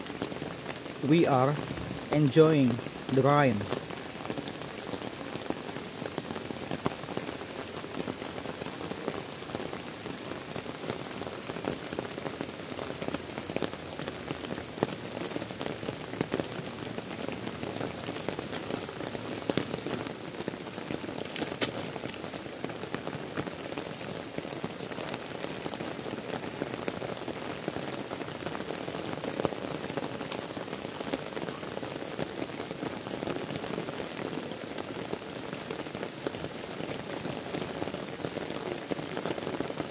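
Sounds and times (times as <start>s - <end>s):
heavy rain hissing: 0.0s - 39.9s
single raindrops tapping: 21.0s - 22.3s.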